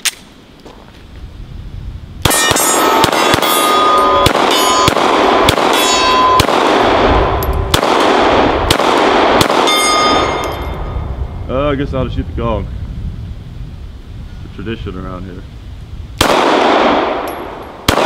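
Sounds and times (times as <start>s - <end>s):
pistol shots: 2.2s - 10.4s, 16.2s - 18.0s
steel targets clanging: 2.3s - 5.0s, 5.7s - 6.4s, 9.6s - 10.8s.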